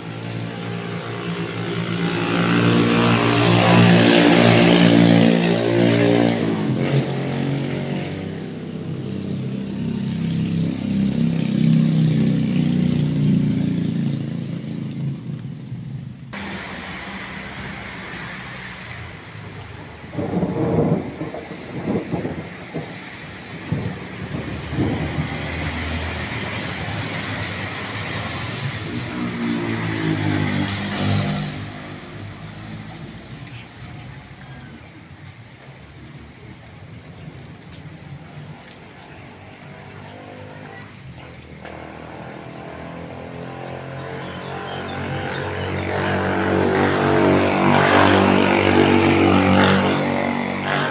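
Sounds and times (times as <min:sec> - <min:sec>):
steady rain: 0:00.0 - 0:50.9
vehicle engine passing by: 0:00.3 - 0:15.7, 0:16.4 - 0:34.8, 0:38.5 - 0:50.9.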